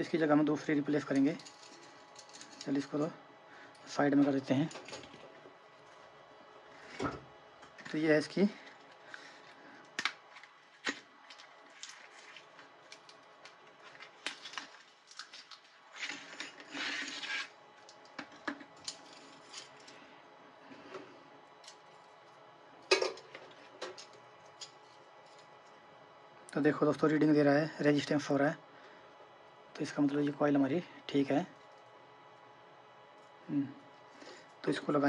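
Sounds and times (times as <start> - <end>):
rod rubbing slide: 16.0 - 17.6.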